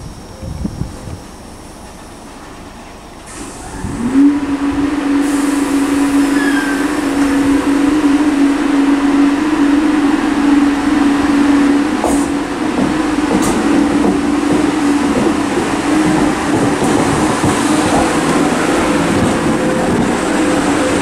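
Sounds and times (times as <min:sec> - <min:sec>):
train electrical hum: 0:00.0 - 0:21.0
train rumble: 0:00.0 - 0:21.0.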